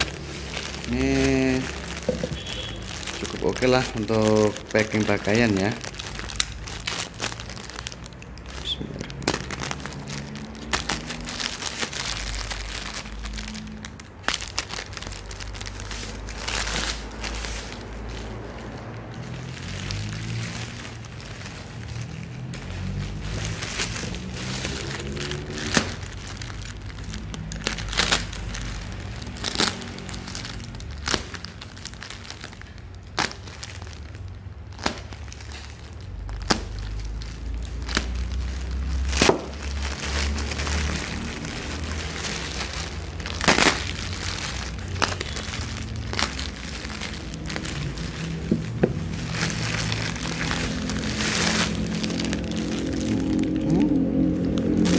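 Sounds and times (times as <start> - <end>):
plastic and packing tape crackling: 0.0 - 54.9.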